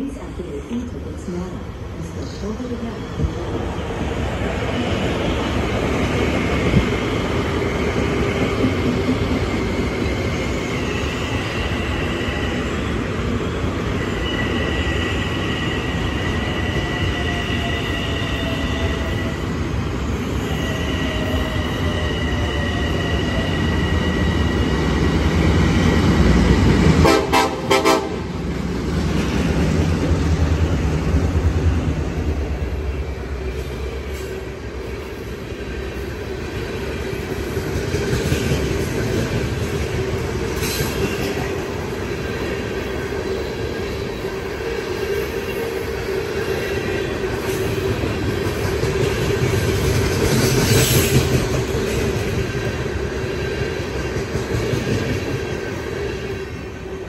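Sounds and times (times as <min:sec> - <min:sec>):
freight train rolling past: 0:00.0 - 0:57.0
train rumbling: 0:00.0 - 0:57.0
train horn blast: 0:27.0 - 0:28.3.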